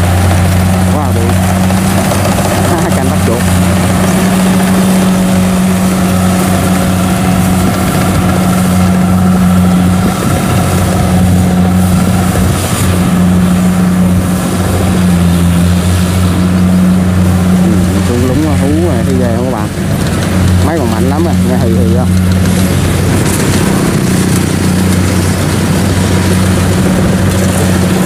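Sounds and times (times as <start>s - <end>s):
diesel engine running: 0.0s - 28.0s
threshing drum rushing: 0.0s - 28.0s.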